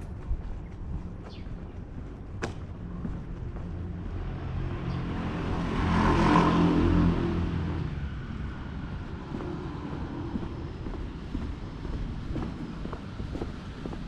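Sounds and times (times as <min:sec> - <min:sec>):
car passing by: 0:03.8 - 0:14.0.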